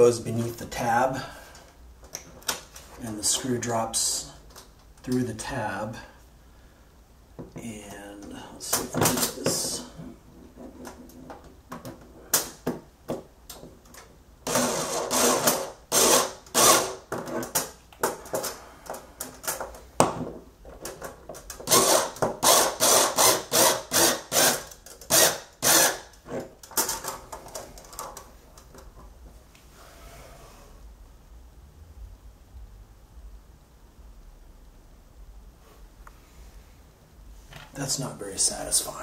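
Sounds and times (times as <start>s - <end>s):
cordless screwdriver bursts: 14.5s - 17.0s, 21.7s - 26.1s.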